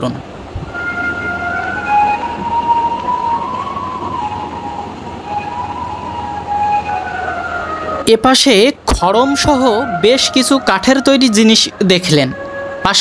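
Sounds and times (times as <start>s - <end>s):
slow melody of held notes: 0.4s - 8.2s, 9.0s - 13.0s.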